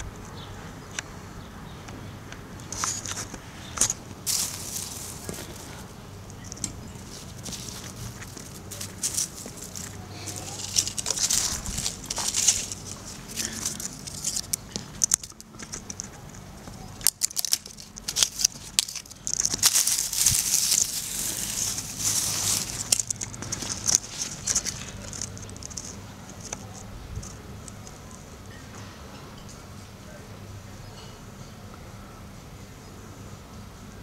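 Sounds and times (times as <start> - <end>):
footsteps crunching through dry leaves: 2.7 - 15.4, 16.6 - 27.9.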